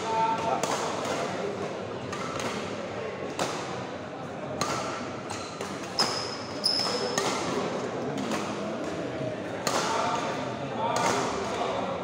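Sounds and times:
murmur of spectators: 0:00.0 - 0:12.0
rackets hitting shuttlecock: 0:00.2 - 0:11.8
shoes squeaking on floor: 0:05.9 - 0:07.2.

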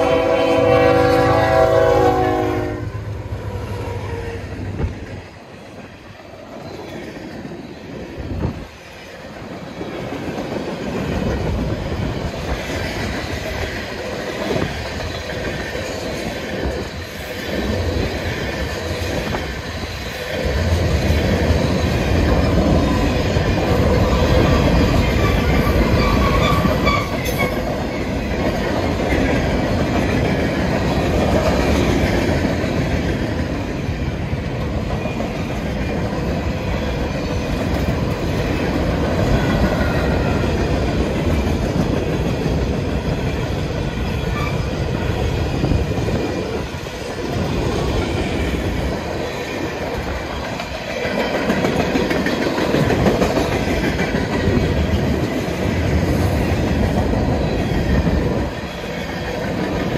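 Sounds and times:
locomotive horn: 0:00.0 - 0:03.1
diesel locomotives passing: 0:00.0 - 0:59.9
train wheels clacking over rail joints: 0:08.3 - 0:59.9.

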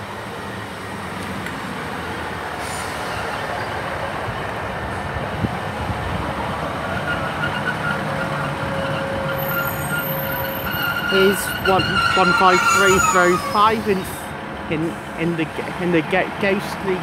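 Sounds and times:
diesel train running noise: 0:00.0 - 0:17.0
high train brake squeal: 0:02.6 - 0:03.8, 0:06.9 - 0:14.2.

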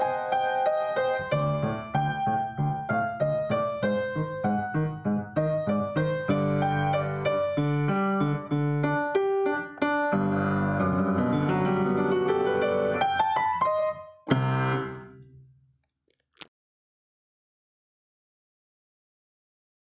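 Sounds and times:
piano playing: 0:00.0 - 0:15.4.

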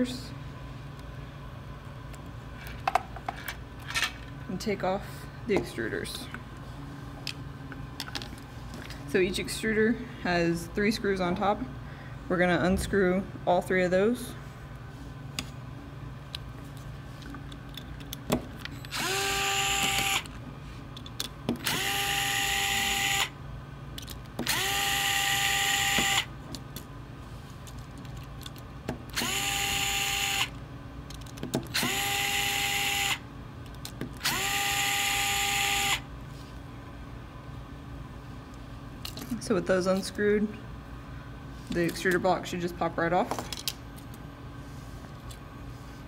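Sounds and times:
power screwdriver motor whine: 0:18.9 - 0:20.3, 0:21.6 - 0:23.4, 0:24.4 - 0:26.3, 0:29.1 - 0:30.6, 0:31.7 - 0:33.2, 0:34.2 - 0:36.1.

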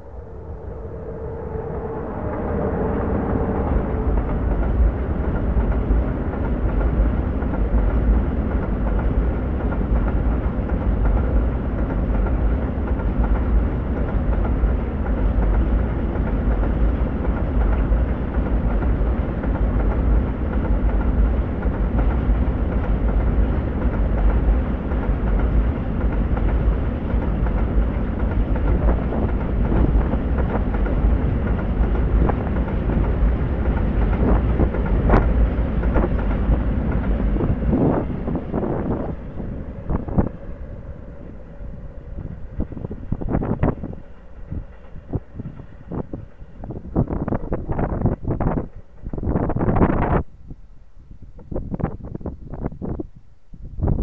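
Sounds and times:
freight train wheels rumbling: 0:00.0 - 0:53.1.

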